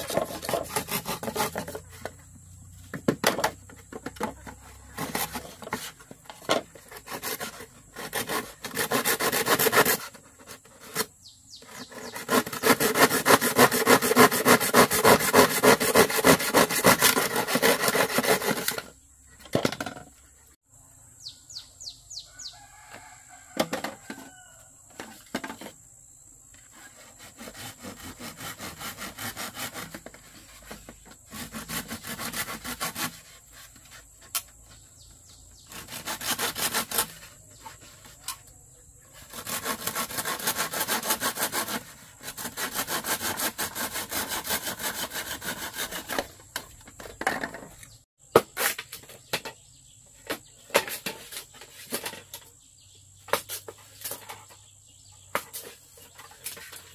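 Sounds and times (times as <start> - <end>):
back-and-forth rasping strokes: 0.0 - 2.3, 6.7 - 19.0, 26.7 - 34.4, 35.6 - 38.4, 39.1 - 46.4.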